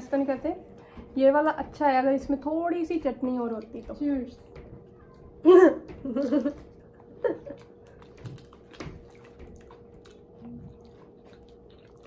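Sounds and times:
faint steady hum: 0.0s - 12.0s
person chewing and lip smacking: 4.9s - 12.0s.

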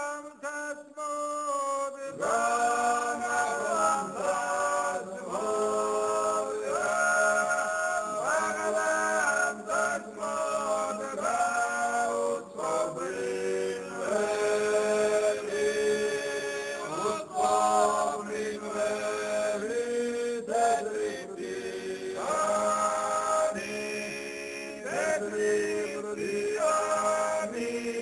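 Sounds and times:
voices singing a chant: 0.0s - 28.0s.

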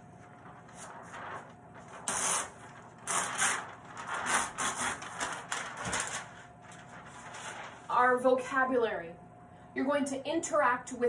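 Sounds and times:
chart paper rustling: 0.0s - 8.0s.

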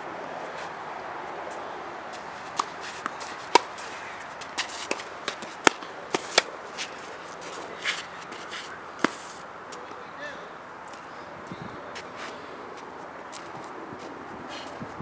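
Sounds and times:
racket hitting tennis ball: 1.5s - 10.0s
tennis ball bounces: 2.1s - 10.0s.

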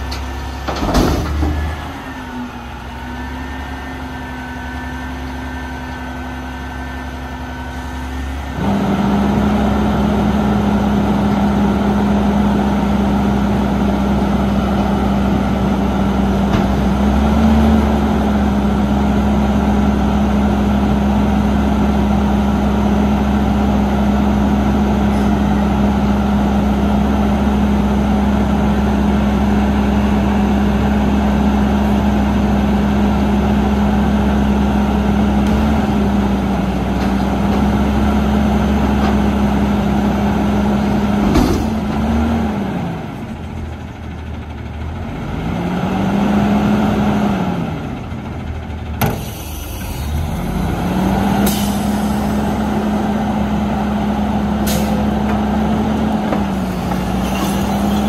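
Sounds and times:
garbage truck engine idling: 47.8s - 58.0s.

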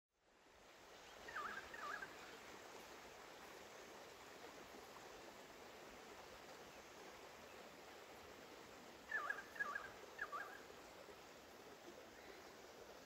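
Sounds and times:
river flowing over stones: 0.2s - 13.0s
bird calling: 1.3s - 2.1s, 9.1s - 10.6s.

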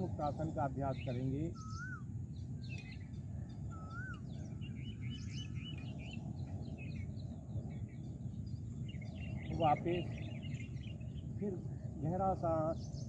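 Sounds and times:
birds chirping: 0.0s - 13.0s
low outdoor rumble: 0.0s - 13.0s
whistled bird note: 1.5s - 2.1s, 2.7s - 6.2s.

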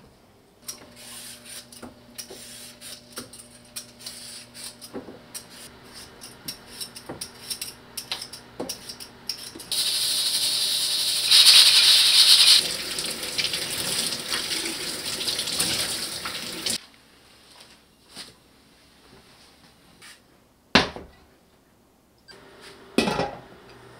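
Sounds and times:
potatoes being peeled: 0.6s - 9.9s, 11.0s - 12.7s
pressure cooker hissing: 9.7s - 16.8s.

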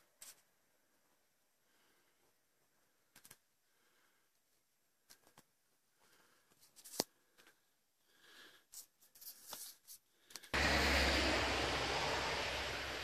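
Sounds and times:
vehicle passing on a road: 10.6s - 13.0s.

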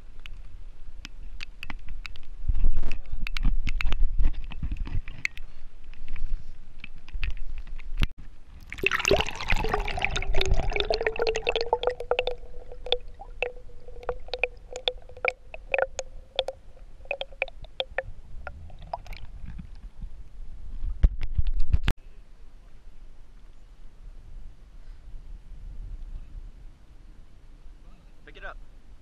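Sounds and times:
water dripping: 8.6s - 19.4s
water pouring and gurgling: 8.6s - 19.7s.

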